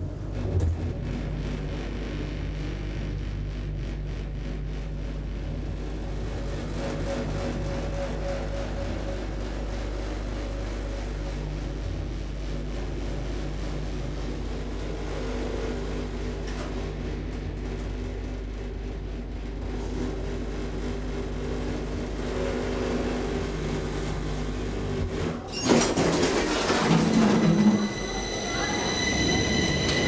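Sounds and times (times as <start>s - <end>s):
hydraulic elevator hum: 4.8s - 30.0s
loud noise: 26.8s - 30.0s.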